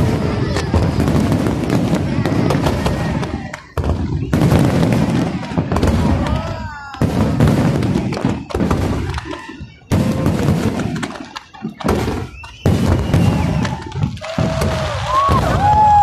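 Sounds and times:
firework shells booming: 0:00.0 - 0:16.0
whistling fireworks: 0:00.0 - 0:16.0.

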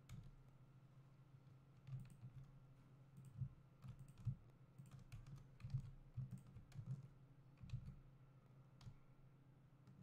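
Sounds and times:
keyboard and mouse clicking: 0:01.8 - 0:02.5, 0:03.2 - 0:08.0.

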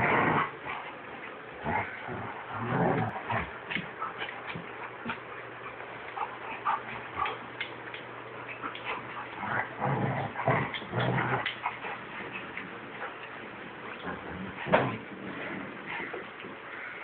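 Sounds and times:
dogs scuffling: 0:02.8 - 0:17.0.

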